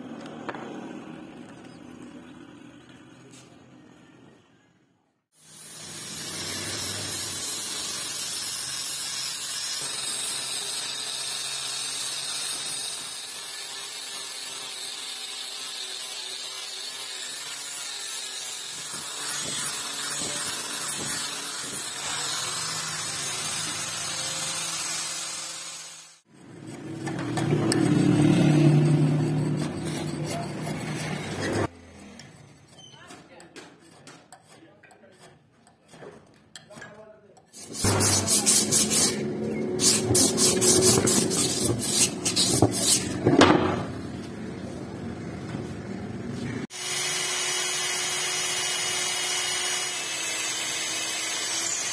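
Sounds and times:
angle grinder sanding wood: 0:05.4 - 0:32.8, 0:37.5 - 0:43.3.

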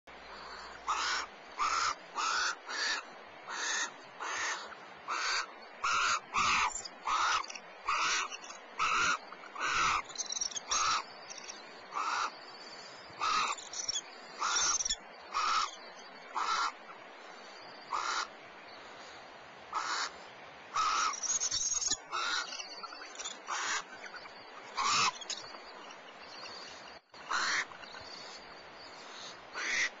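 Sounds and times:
owls raspy hissing calls: 0:00.4 - 0:12.4, 0:13.2 - 0:16.8, 0:17.9 - 0:18.3, 0:19.7 - 0:23.9, 0:24.7 - 0:25.4, 0:27.3 - 0:30.0.

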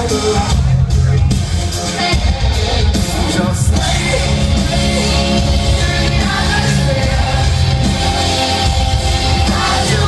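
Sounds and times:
rock band playing: 0:00.0 - 0:10.0.

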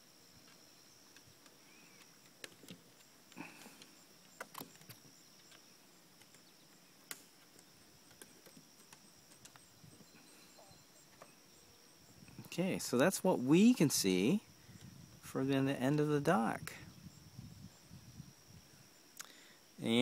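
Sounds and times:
insect trill: 0:00.0 - 0:20.0
faint clicks and knocks: 0:00.4 - 0:09.7.

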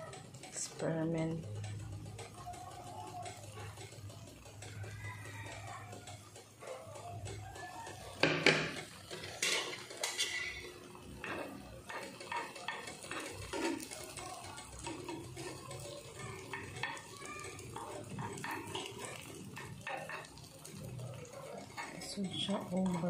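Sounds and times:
metal spoon scraping frying pan: 0:08.2 - 0:20.8.

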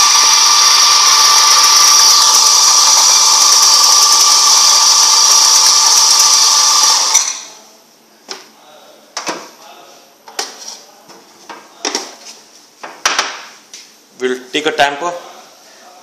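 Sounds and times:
coffee grinder motor whining: 0:00.0 - 0:07.5.

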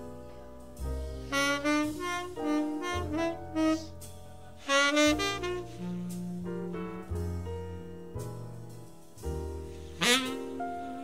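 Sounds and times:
double bass low notes: 0:00.0 - 0:11.0
tenor saxophone playing jazz ballad: 0:01.2 - 0:07.0, 0:10.0 - 0:11.0.

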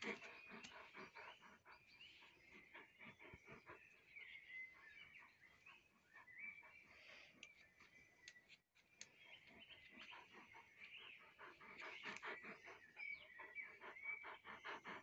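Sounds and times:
soft clicks: 0:08.2 - 0:09.2.

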